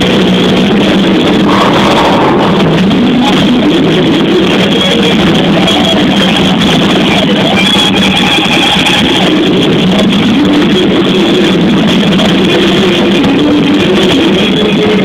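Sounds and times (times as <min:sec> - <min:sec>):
drums: 0:00.0 - 0:15.0
electric guitar riffs: 0:00.0 - 0:15.0.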